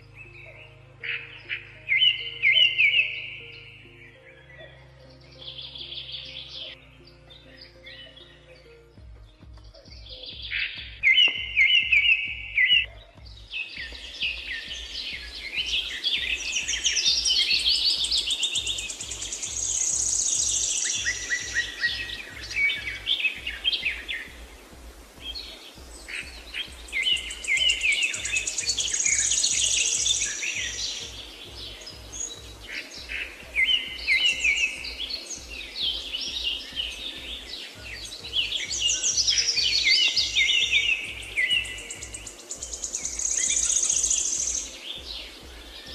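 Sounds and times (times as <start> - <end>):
birds chirping and trilling: 0.0 - 45.9
pulsing bass music: 0.0 - 45.9.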